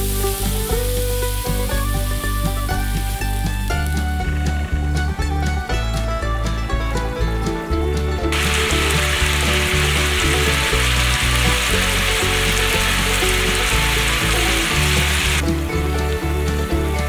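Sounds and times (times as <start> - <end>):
sauce sizzling in a frying pan: 0.0 - 1.6, 8.4 - 15.4.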